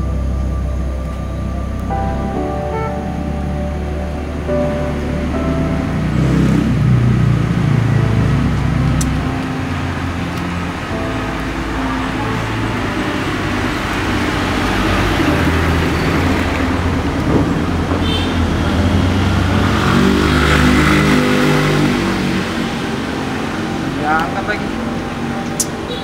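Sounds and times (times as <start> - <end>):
vehicle engine running: 0.0 - 26.0.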